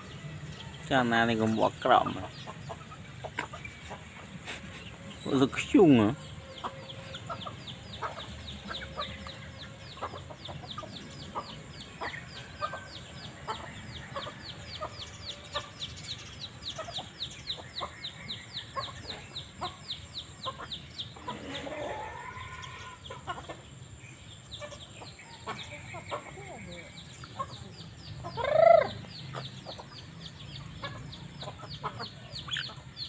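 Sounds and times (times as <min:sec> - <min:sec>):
chick peeping: 0:00.0 - 0:33.0
chickens clucking: 0:00.0 - 0:33.0
rising and falling chicken call: 0:21.3 - 0:23.0, 0:28.4 - 0:29.0.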